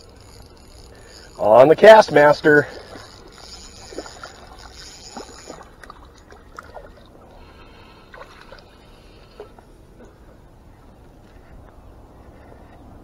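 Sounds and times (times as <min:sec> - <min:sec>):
faint water sounds: 0:00.0 - 0:13.0
low wind rumble: 0:05.8 - 0:13.0.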